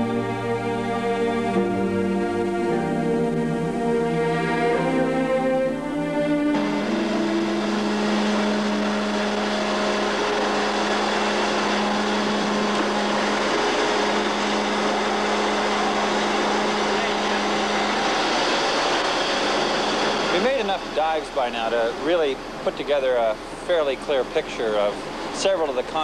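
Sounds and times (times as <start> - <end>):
sea noise: 0.0 - 26.0
ship machinery drone: 0.0 - 26.0
wind: 5.2 - 26.0.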